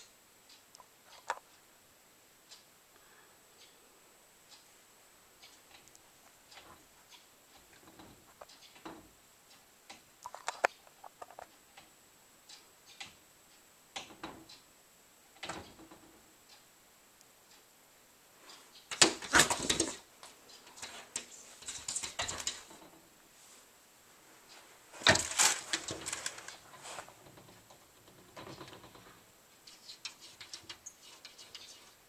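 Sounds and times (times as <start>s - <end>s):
cats scrabbling against door: 18.9s - 20.1s, 20.7s - 23.0s, 25.0s - 29.2s, 30.0s - 31.8s
paws tapping on glass: 29.7s - 32.0s.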